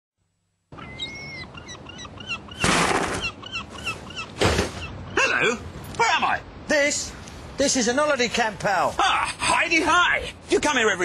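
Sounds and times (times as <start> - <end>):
birds chirping: 0.7 - 10.1.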